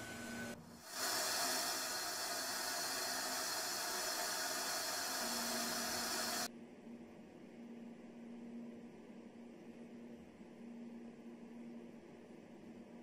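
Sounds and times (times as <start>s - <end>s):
air hissing out of valve: 0.0s - 6.5s.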